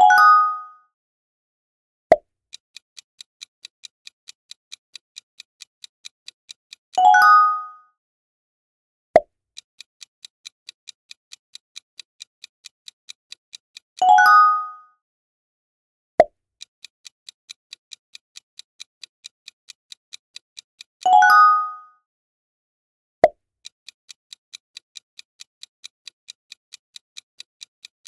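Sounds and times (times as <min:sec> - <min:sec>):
clock ticking: 0:02.5 - 0:07.7, 0:09.6 - 0:14.8, 0:16.6 - 0:21.8, 0:23.6 - 0:28.0.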